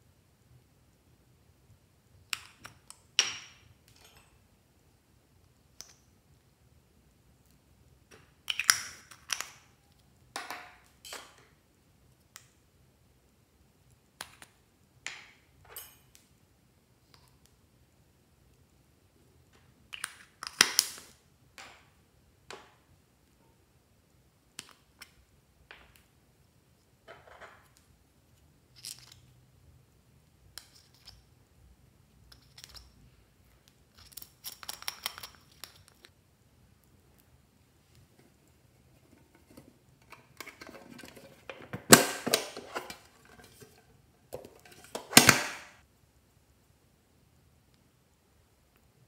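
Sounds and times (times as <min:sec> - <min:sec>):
metal spatula scraping plastic pot: 0:38.9 - 0:45.1.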